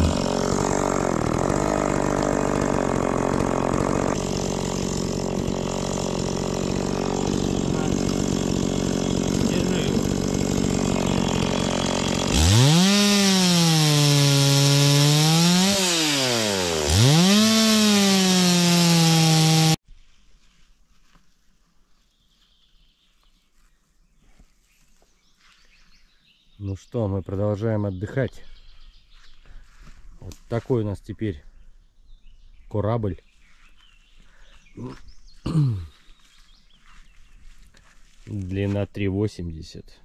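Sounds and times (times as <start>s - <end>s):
outboard motor running: 0.0s - 12.8s
wind: 19.8s - 40.0s.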